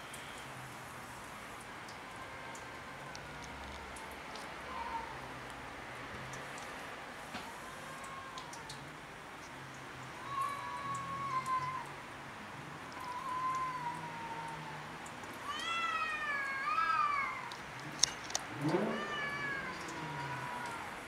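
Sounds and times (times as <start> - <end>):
cats yowling: 4.6 - 5.2, 7.4 - 8.9, 10.2 - 12.0, 12.8 - 21.0.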